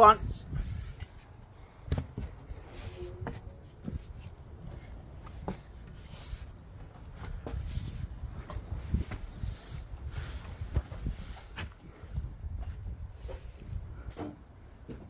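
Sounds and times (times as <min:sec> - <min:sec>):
shoes scuffing on wooden plank: 0:01.9 - 0:11.8.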